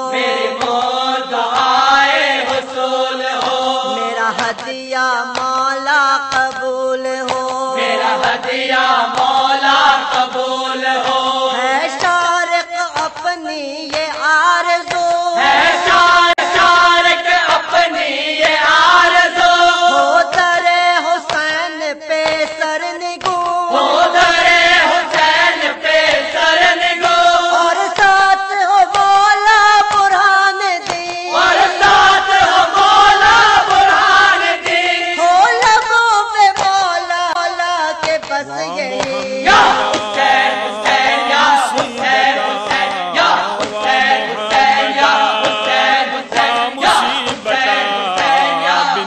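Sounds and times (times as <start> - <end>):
person chanting mournful melody: 38.3 - 49.0.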